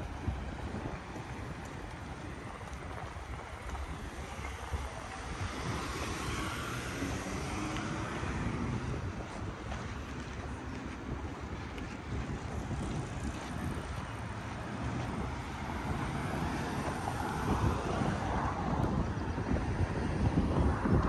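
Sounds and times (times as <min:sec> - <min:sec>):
vehicle noise: 0:00.0 - 0:21.0
wind on microphone: 0:00.0 - 0:21.0.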